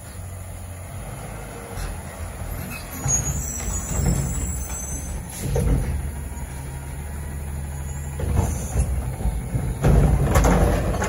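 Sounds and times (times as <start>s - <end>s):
garbage truck diesel engine: 0.0s - 11.0s
high brake squeal: 2.5s - 5.6s, 7.7s - 8.9s.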